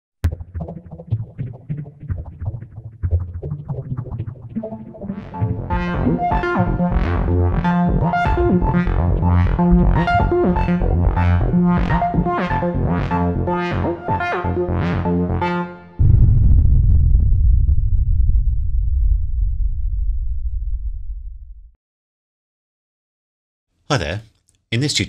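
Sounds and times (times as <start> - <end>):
synthesizer music: 3.4 - 16.0
loud deep rumble: 16.0 - 21.8.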